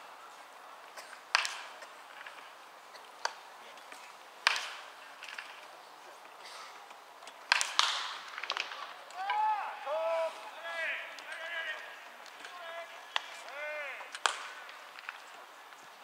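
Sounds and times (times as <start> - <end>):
balls cracking off bats: 0.8 - 16.0
balls popping into gloves: 7.5 - 9.4.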